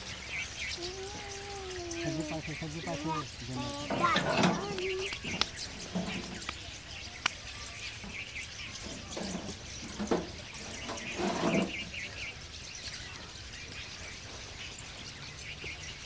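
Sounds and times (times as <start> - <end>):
outdoor background noise: 0.0 - 16.0
small birds chirping: 0.0 - 16.0
low voice-like sounds: 0.8 - 5.3.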